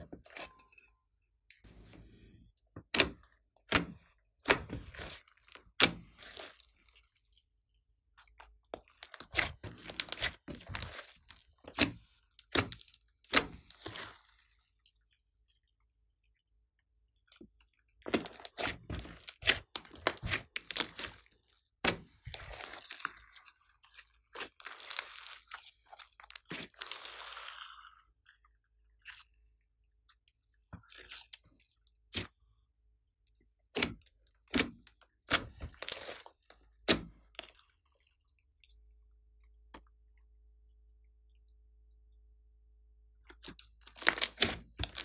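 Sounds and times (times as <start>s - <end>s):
slime squishing with wet pops: 8.1s - 14.6s, 17.5s - 27.6s, 33.7s - 37.8s, 43.3s - 45.0s
hissing crackle of slime: 26.6s - 27.9s.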